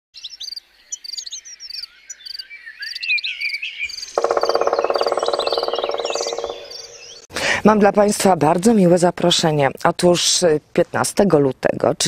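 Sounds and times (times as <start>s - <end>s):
high bird-like chirping calls: 0.2s - 7.3s.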